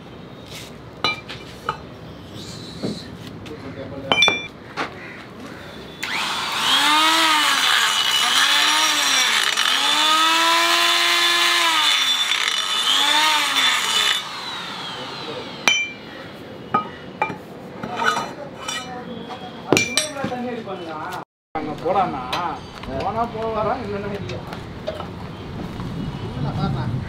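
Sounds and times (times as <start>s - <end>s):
die grinder grinding metal: 6.0s - 15.6s.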